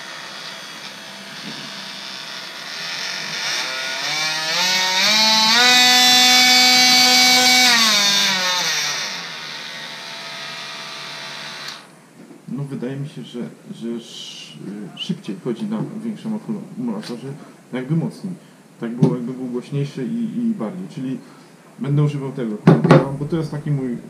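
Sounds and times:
oscillating multi-tool running: 0.0 - 11.9.

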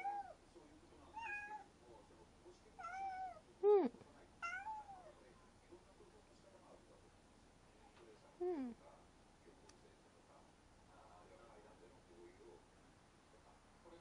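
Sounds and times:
cat meowing: 1.1 - 1.7, 2.8 - 3.4, 4.4 - 5.1.

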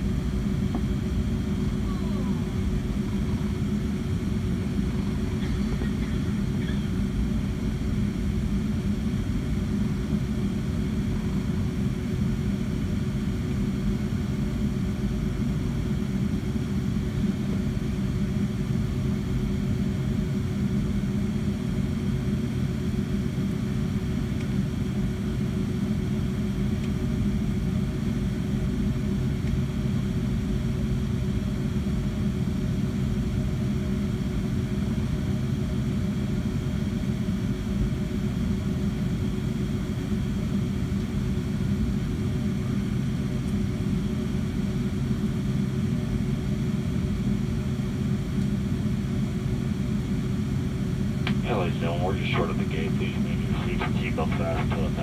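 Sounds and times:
steady hum: 0.0 - 24.5, 36.4 - 55.0
aircraft cabin low rumble: 0.0 - 55.0.

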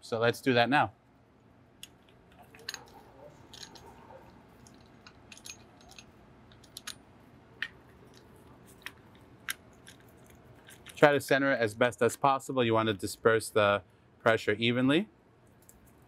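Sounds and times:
metal parts clicking and tapping: 1.8 - 4.0, 4.6 - 7.0, 7.6 - 11.0.

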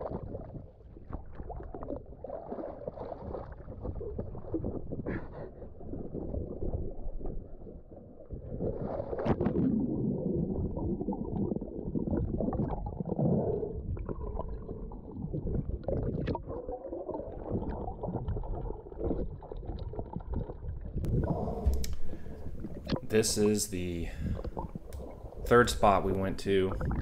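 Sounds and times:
muffled water sloshing: 0.0 - 27.0
dull low rumble: 17.6 - 27.0
faint clicks: 21.7 - 22.2.

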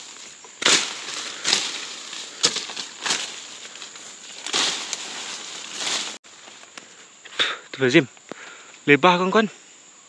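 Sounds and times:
brush swishing and crackling: 0.0 - 6.2.

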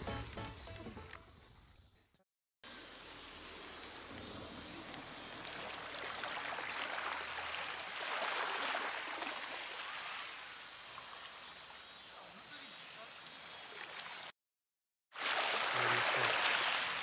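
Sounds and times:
waves washing over pebbles: 15.2 - 17.0.

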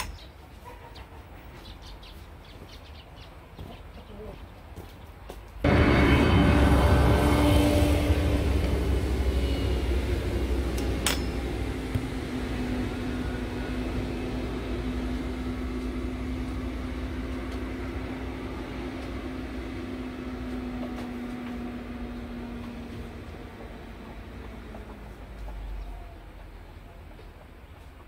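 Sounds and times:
low rumble: 5.6 - 26.2
mechanical hum: 5.6 - 26.5.

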